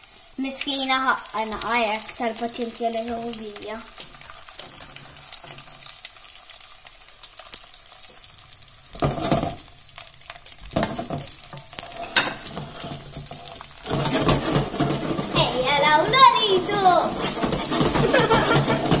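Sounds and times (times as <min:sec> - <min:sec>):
prawns sizzling in oil: 0:00.0 - 0:19.0
knocking in a wok: 0:09.0 - 0:09.6, 0:17.2 - 0:19.0.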